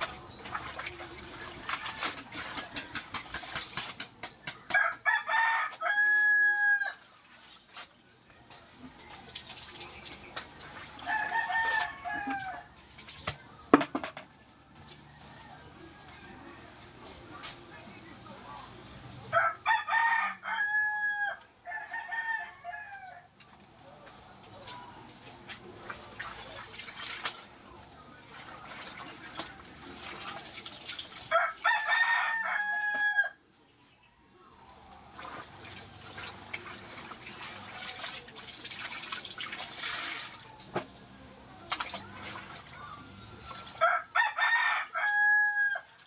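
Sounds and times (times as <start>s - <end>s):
water splashing and dripping: 0.0s - 5.1s, 6.9s - 13.9s, 24.6s - 31.8s, 34.7s - 43.8s
rooster crowing: 4.7s - 7.0s, 11.0s - 12.8s, 14.8s - 16.9s, 19.3s - 23.3s, 31.3s - 33.4s, 43.8s - 46.0s.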